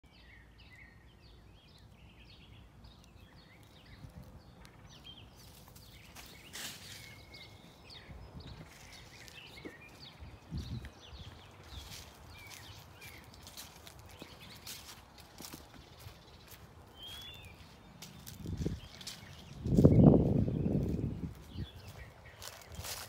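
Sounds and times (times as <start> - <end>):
birds chirping: 0.0 - 23.0
crackling rustles: 2.9 - 7.6, 10.8 - 19.9, 20.8 - 23.0
low wind rumble: 6.8 - 23.0.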